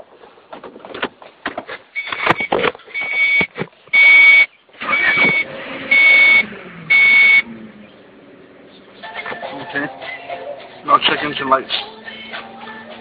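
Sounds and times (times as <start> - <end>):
dashboard warning beeps: 2.0 - 7.5.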